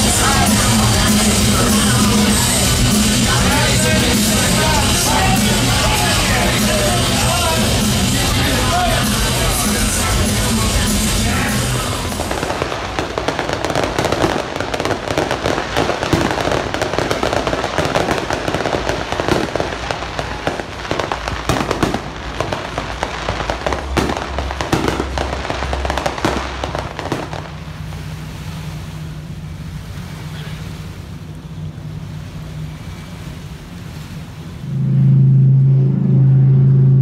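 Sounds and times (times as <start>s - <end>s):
fireworks bangs and crackle: 0.0s - 28.1s
heavy fireworks booms: 0.0s - 28.2s.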